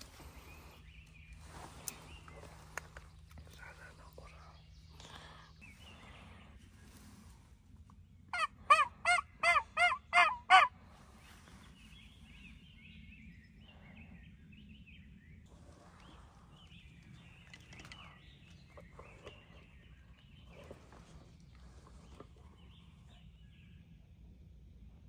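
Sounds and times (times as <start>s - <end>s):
faint songbird chirps: 0.0s - 8.4s, 10.8s - 25.0s
turkey yelps: 8.3s - 10.7s.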